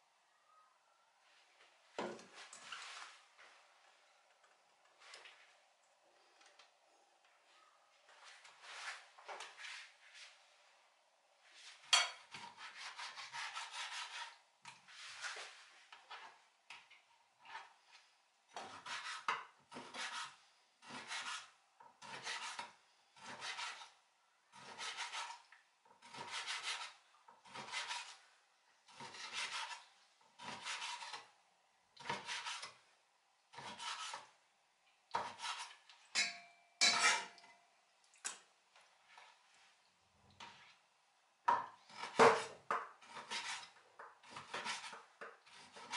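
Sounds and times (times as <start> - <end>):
metallic ring: 36.2 - 37.3.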